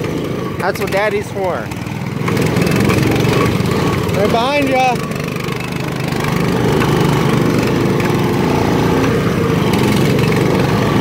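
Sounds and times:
atv engine running: 0.0 - 11.0
go-kart engine running: 0.0 - 11.0.

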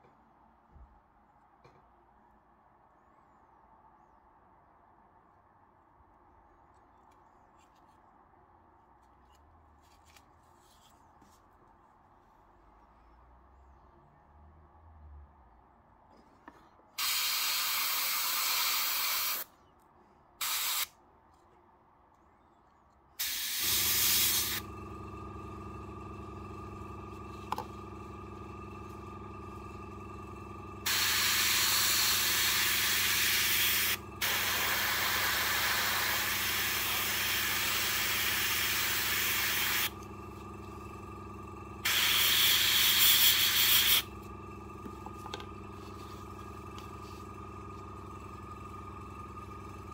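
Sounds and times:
airbrush spraying hissing bursts: 17.0 - 19.5, 20.4 - 20.9, 23.2 - 24.6, 30.8 - 39.9, 41.8 - 44.1
compressor humming: 23.2 - 49.9.

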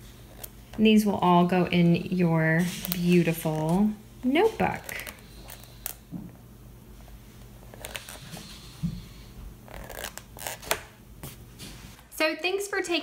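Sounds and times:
book pages turning: 0.0 - 0.8, 2.6 - 6.1, 7.0 - 8.7, 9.7 - 12.0.

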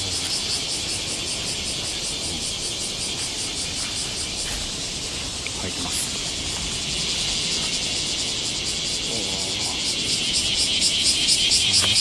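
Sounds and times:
cicadas buzzing: 0.0 - 12.0.

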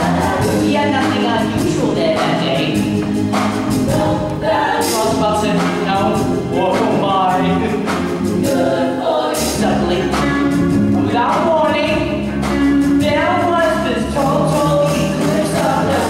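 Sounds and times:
female chorus singing in harmony: 0.0 - 5.9, 8.4 - 10.4, 13.0 - 16.0
instrumental accompaniment: 0.0 - 16.0.

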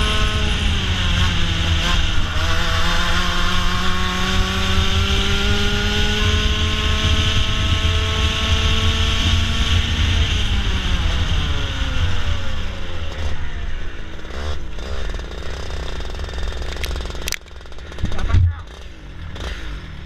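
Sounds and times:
kart engine revving: 0.0 - 20.0.

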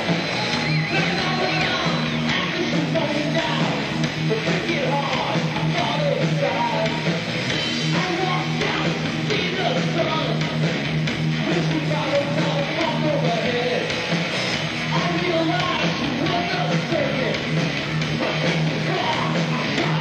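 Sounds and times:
bass guitar: 0.0 - 20.0
drum kit: 0.0 - 20.0
electric guitars: 0.0 - 20.0.

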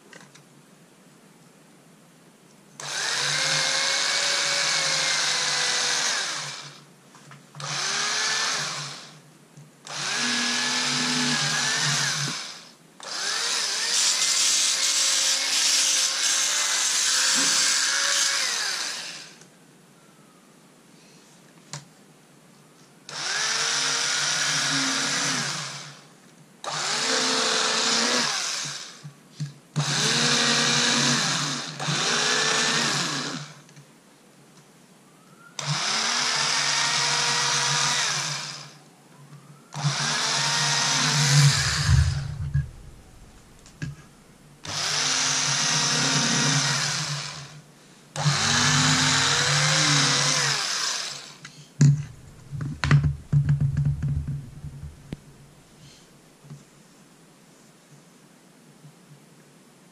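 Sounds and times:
small electric tool motor bursts: 2.8 - 6.8, 7.6 - 9.2, 9.9 - 19.4, 23.1 - 29.0, 29.8 - 33.6, 35.6 - 38.8, 39.8 - 43.9, 44.6 - 47.6, 48.2 - 53.0.

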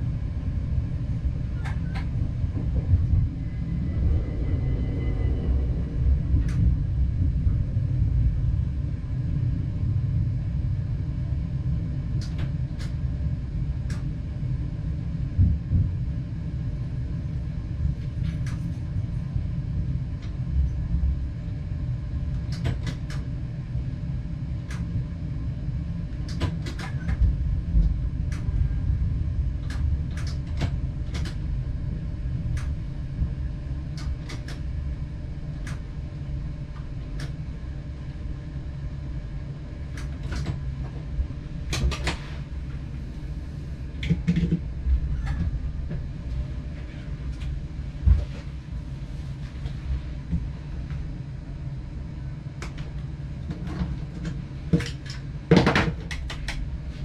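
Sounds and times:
train engine rumbling: 0.0 - 12.8.

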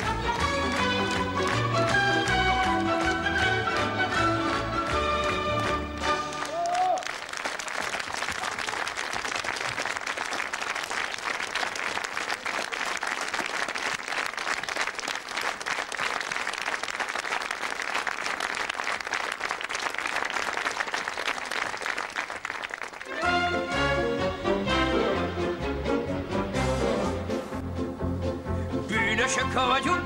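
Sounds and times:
audience applauding: 0.0 - 24.0.

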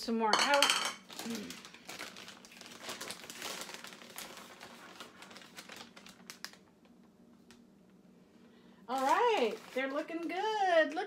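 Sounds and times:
plastic bag crinkling: 1.0 - 7.6, 8.8 - 11.0.

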